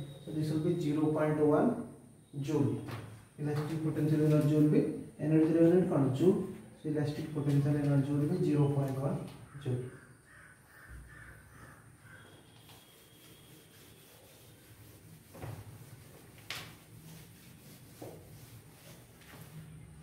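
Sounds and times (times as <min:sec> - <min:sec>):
crows cawing faintly: 0:09.2 - 0:13.4
duster wiping a blackboard: 0:12.0 - 0:20.0.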